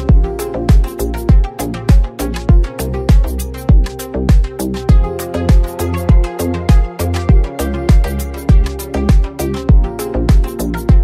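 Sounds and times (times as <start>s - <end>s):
electronic dance music: 0.0s - 11.0s
deep kick drum: 0.1s - 11.0s.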